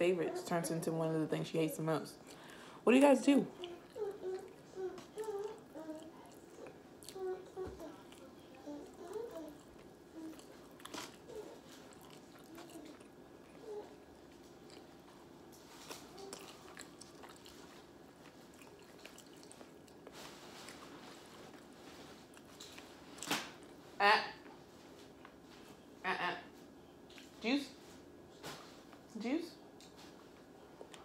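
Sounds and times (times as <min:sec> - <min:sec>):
chewing and biting: 0:03.5 - 0:23.7.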